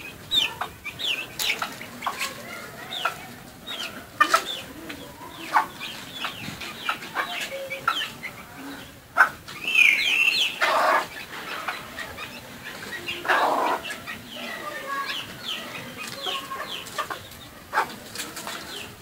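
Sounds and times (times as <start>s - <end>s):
chickens clucking: 0.0s - 19.0s
chicken squawk: 9.2s - 14.2s.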